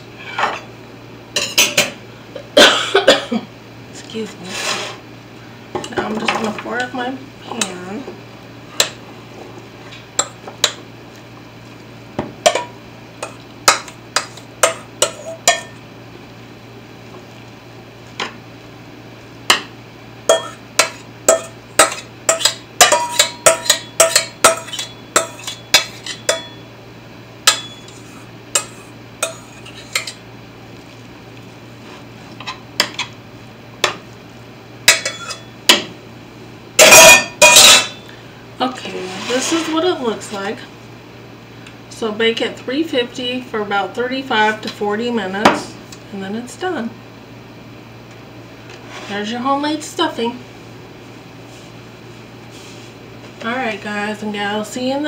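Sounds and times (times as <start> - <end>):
utensil clinking on metal bowl: 12.5 - 15.8, 20.3 - 26.6, 27.5 - 30.2, 34.9 - 35.8, 36.8 - 38.0.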